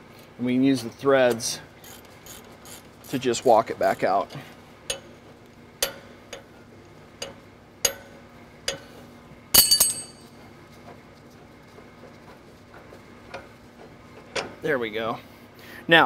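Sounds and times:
ringing metal strike: 9.6 - 10.3
steel clinks and taps: 9.6 - 10.3.

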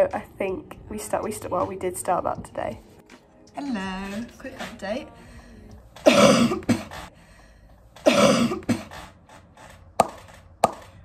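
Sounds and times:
woman coughing: 6.0 - 7.0, 8.0 - 9.0.

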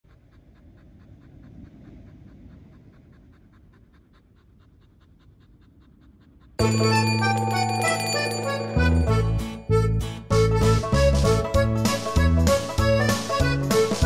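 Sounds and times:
low background rumble: 0.0 - 6.7
puppy panting rapidly: 0.0 - 7.8
music: 6.6 - 14.0.

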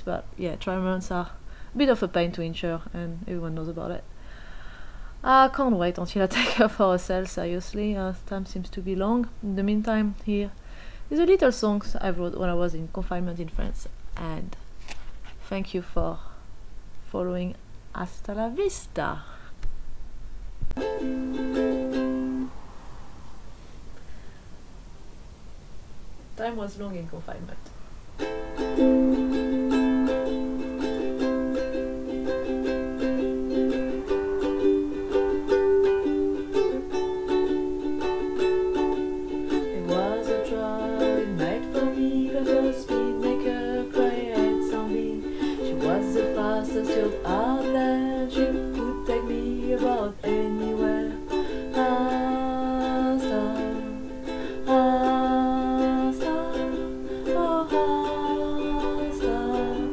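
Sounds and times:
ukulele strumming chords: 20.7 - 22.6, 28.2 - 59.9
woman singing: 39.5 - 59.9.

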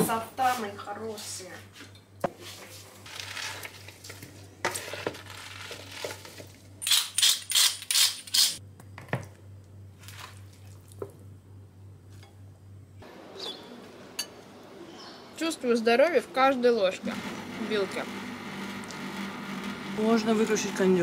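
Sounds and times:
rustling scrapes: 2.4 - 6.6
steady low hum: 8.6 - 21.0.

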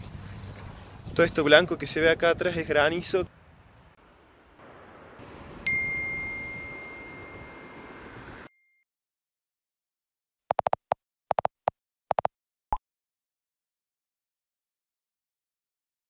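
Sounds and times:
bright ding: 5.7 - 7.8.

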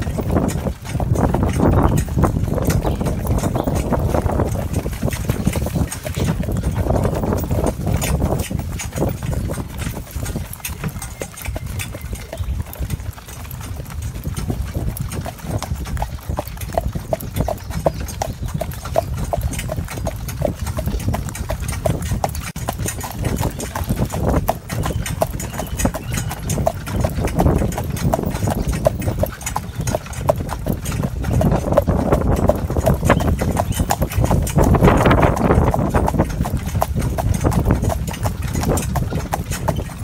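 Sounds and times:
horse hooves clip-clopping: 0.0 - 40.0.

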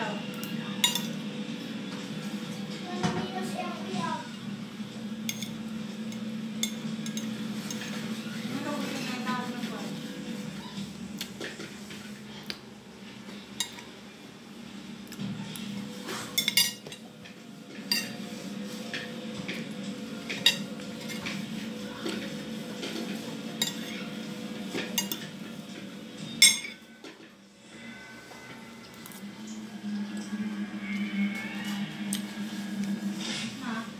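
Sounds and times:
cutlery clinking on a plate: 5.3 - 8.0, 23.6 - 24.0, 24.7 - 25.3, 26.4 - 26.9.

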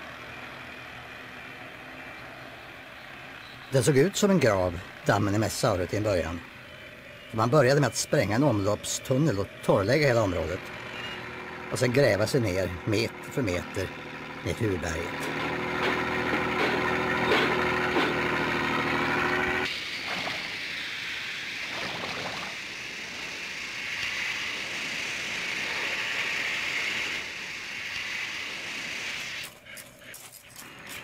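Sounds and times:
power shovel engine running: 0.0 - 31.0
water rushing from a hose: 19.7 - 29.5.

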